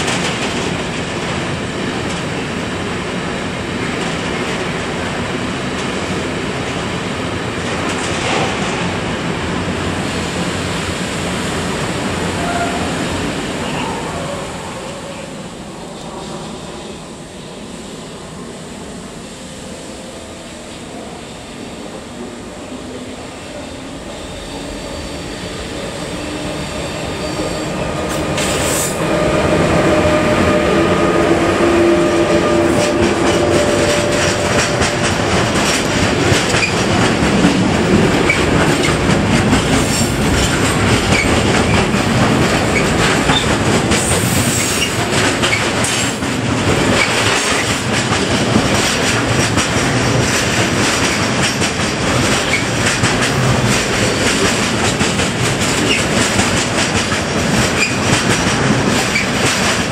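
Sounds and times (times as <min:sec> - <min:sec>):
train wheels clattering on rail: 0:00.0 - 0:13.2, 0:25.4 - 0:59.9.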